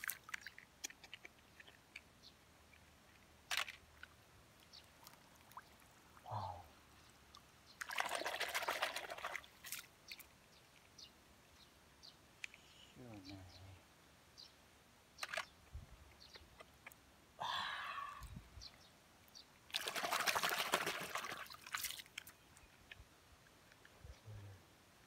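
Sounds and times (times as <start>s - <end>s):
water trickling: 0.0s - 11.0s.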